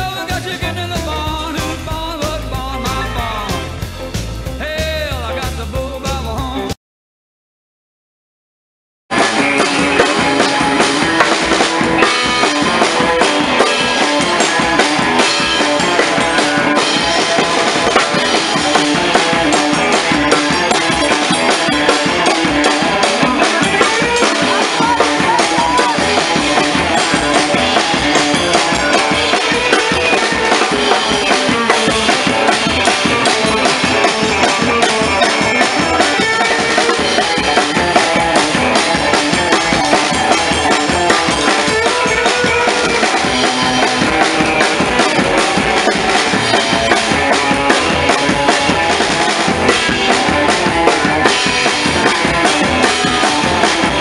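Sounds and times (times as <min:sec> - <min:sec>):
upright double bass: 0:00.0 - 0:06.7
drum kit driving beat: 0:00.0 - 0:06.8, 0:09.1 - 0:54.0
live rock and roll band: 0:00.0 - 0:06.8, 0:09.1 - 0:54.0.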